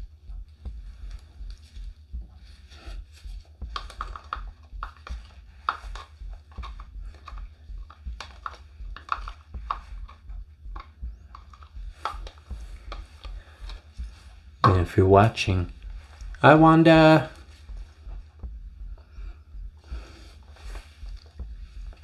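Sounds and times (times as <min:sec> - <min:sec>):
low steady hum: 0:00.0 - 0:22.0
plastic cups and stir stick clicking: 0:03.6 - 0:16.5.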